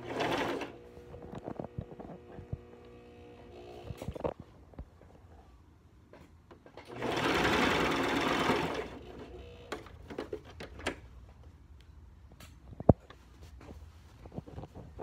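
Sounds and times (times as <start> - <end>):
sewing machine stitching: 0.0 - 0.8, 6.8 - 10.0.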